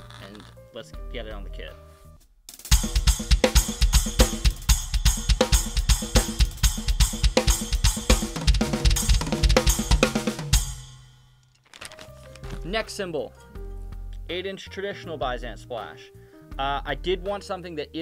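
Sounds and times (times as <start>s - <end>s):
drum kit fast groove: 2.5s - 11.0s.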